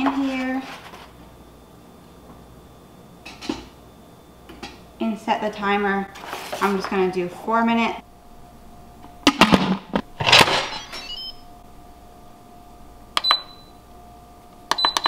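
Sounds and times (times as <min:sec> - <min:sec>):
control panel beeps: 0:10.6 - 0:11.5, 0:13.2 - 0:13.8, 0:14.7 - 0:15.0.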